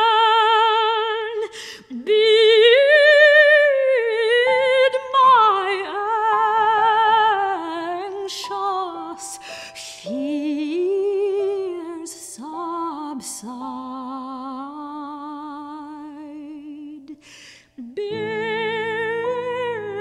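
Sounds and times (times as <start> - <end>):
soprano singing with vibrato: 0.0 - 20.0
piano accompaniment: 4.0 - 14.2, 18.0 - 20.0.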